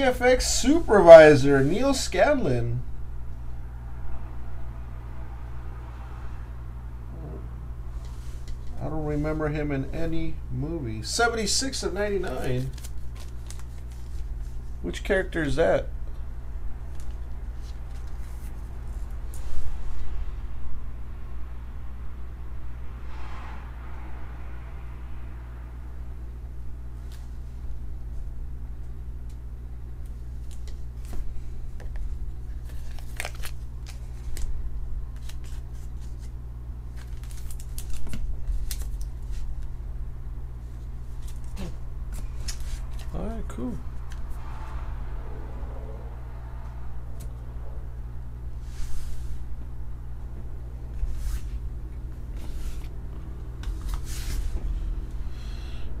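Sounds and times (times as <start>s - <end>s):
steady low hum: 0.0s - 56.0s
plastic sleeve crinkling: 12.3s - 14.6s, 32.5s - 34.5s, 35.1s - 39.6s.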